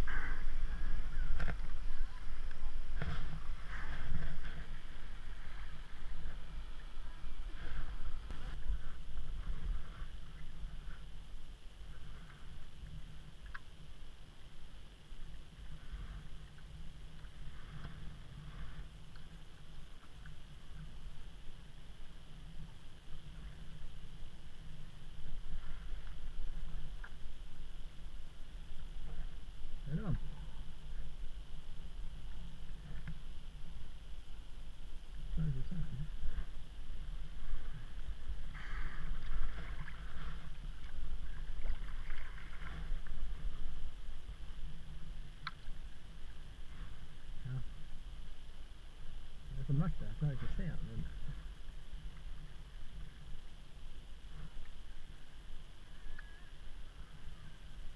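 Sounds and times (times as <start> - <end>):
paddle splashes: 0.0 - 11.0, 37.3 - 47.4
wind on microphone: 0.0 - 13.0
water lapping against kayak hull: 0.0 - 49.4
low steady rumble: 0.0 - 57.9.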